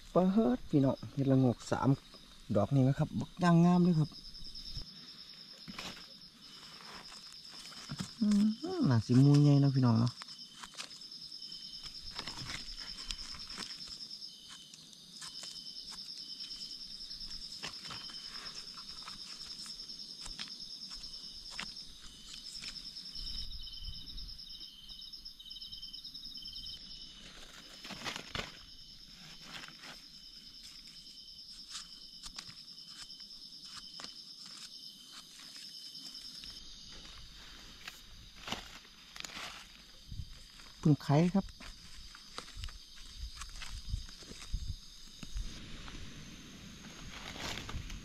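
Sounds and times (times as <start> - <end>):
digging in soil and leaves: 0.0 - 24.1, 26.4 - 48.0
insects trilling: 0.0 - 48.0
lower insect calling: 0.0 - 48.0.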